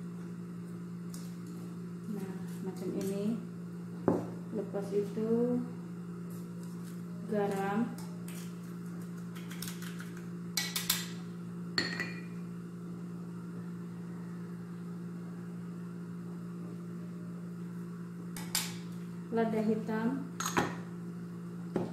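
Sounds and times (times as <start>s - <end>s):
low steady hum: 0.0s - 21.9s
spoon clinking against glass: 11.8s - 12.3s.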